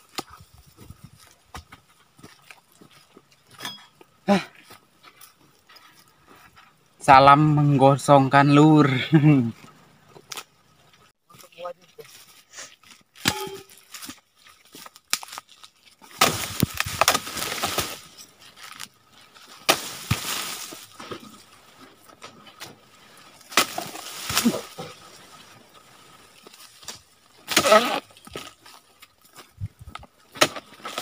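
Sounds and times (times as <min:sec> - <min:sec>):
chisel chopping palm fronds: 0:16.1 - 0:18.1, 0:19.5 - 0:21.2, 0:23.4 - 0:24.9, 0:26.8 - 0:28.4, 0:30.3 - 0:31.0.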